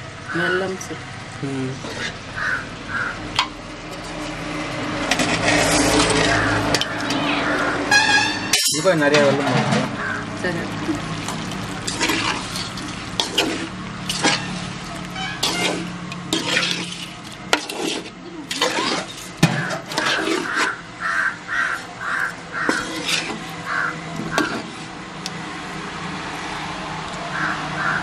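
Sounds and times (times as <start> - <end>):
metal spoon scraping a pan: 1.8 - 2.6, 3.4 - 10.2, 10.8 - 20.8, 21.5 - 25.0
crow cawing: 2.3 - 3.4, 6.3 - 7.9, 9.9 - 10.4, 20.2 - 24.6, 27.2 - 28.0.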